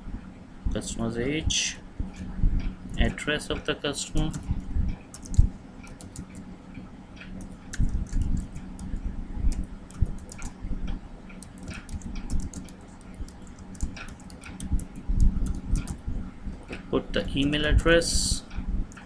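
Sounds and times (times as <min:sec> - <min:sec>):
faint steady hum: 0:00.0 - 0:19.0
keyboard key clicks: 0:09.5 - 0:10.6.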